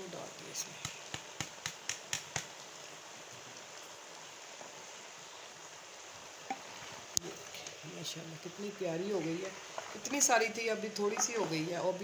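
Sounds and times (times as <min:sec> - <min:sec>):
food sizzling in pot: 0:00.0 - 0:12.0.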